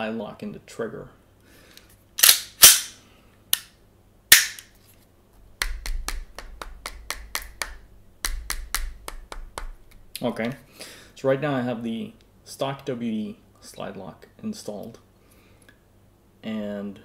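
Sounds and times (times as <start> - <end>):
airsoft pistol shots: 2.2 - 3.0, 4.3 - 4.6.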